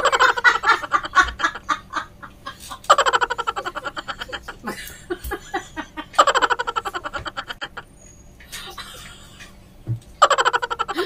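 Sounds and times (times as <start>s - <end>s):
woman laughing: 0.0s - 7.9s, 10.2s - 11.0s.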